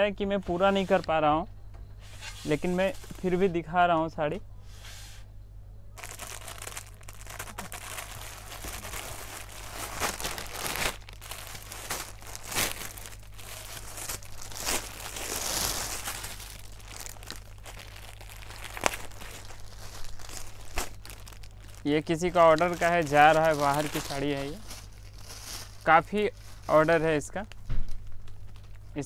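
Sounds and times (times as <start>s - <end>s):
plastic packaging crinkling: 6.0s - 29.0s.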